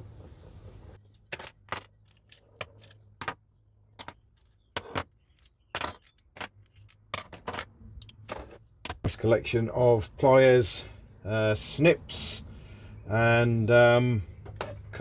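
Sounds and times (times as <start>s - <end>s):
metal tools set on wooden bench: 1.0s - 9.2s.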